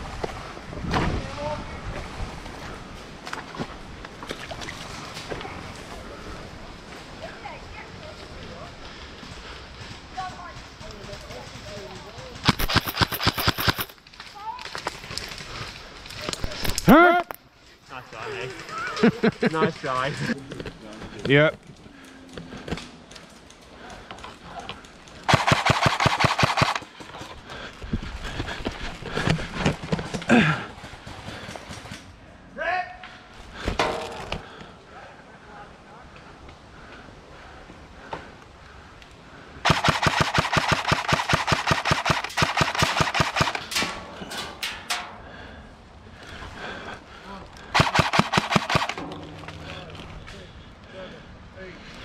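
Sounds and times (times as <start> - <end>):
airsoft gun full-auto burst: 12.4 - 13.9, 25.3 - 26.9, 39.6 - 43.7, 47.7 - 49.0
airsoft rifle single shots: 47.8 - 49.0.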